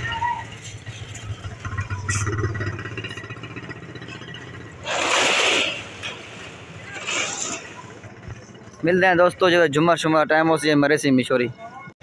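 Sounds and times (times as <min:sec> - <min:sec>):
short loud rush of noise: 0:04.8 - 0:07.9.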